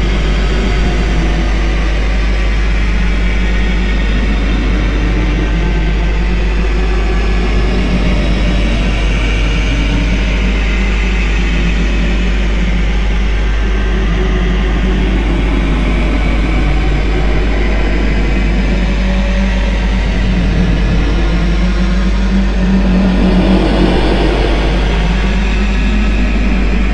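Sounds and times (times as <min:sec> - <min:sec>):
distorted metal music: 0:20.2 - 0:26.9.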